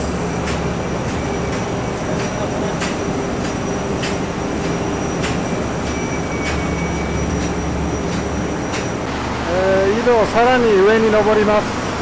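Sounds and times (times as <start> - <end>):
footsteps on metal stairs: 0.0 - 9.1
high-pitched machine whine: 0.0 - 9.1
generators and pumps humming: 0.0 - 12.0.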